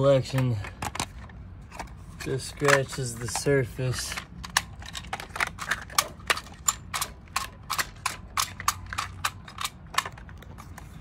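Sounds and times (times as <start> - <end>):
plastic toy clicks: 2.5 - 10.6.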